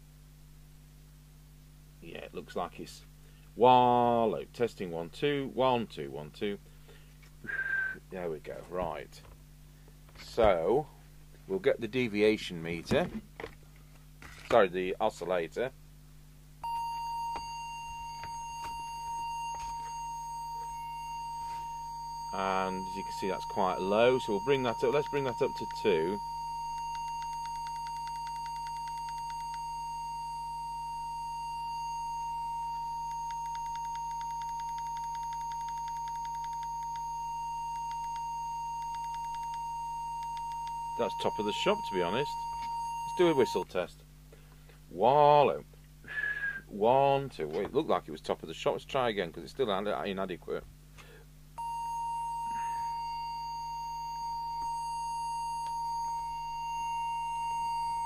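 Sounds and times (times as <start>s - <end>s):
steady test tone: 16.6s - 43.9s, 51.6s - 58.0s.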